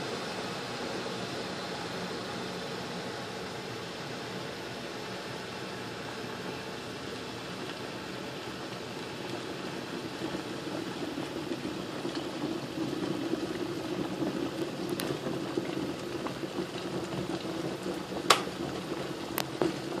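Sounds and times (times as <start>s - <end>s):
kettle boiling: 0.0s - 20.0s
kettle switch click: 18.3s - 18.5s.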